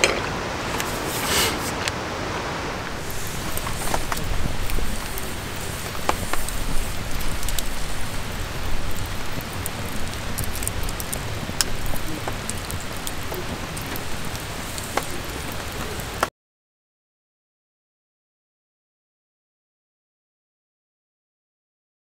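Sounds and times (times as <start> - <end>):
campfire crackling and popping: 0.0 - 16.3
steady hiss and low rumble: 0.0 - 16.3.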